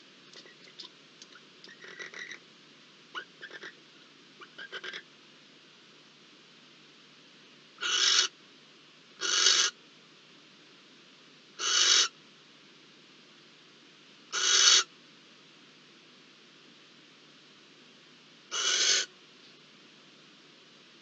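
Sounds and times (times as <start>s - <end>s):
owl hissing calls: 1.7s - 2.4s, 3.2s - 3.8s, 4.4s - 5.0s, 7.8s - 8.3s, 9.2s - 9.8s, 11.6s - 12.2s, 14.3s - 14.9s, 18.5s - 19.1s.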